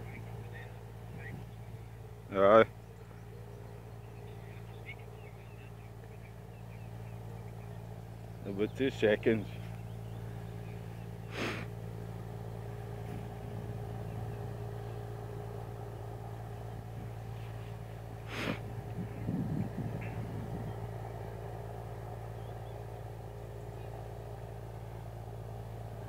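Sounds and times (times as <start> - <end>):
boat diesel engine droning: 0.0 - 26.0
hissing bursts: 11.3 - 11.7.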